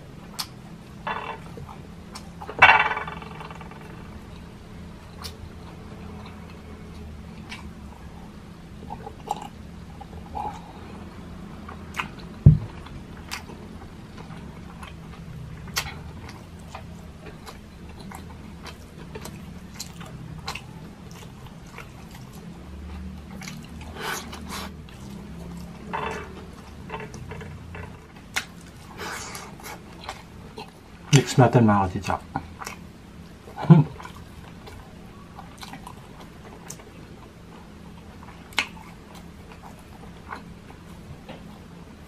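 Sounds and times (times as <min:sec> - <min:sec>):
low thump: 0:12.5 - 0:12.8
mouth clicks and smacks: 0:38.5 - 0:39.7.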